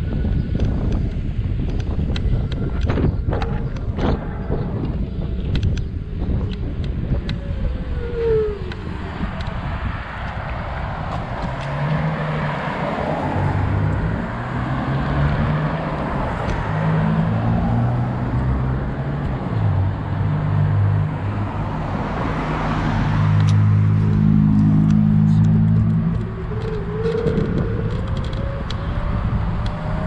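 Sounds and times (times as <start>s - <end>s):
cars driving past: 1.5s - 30.0s.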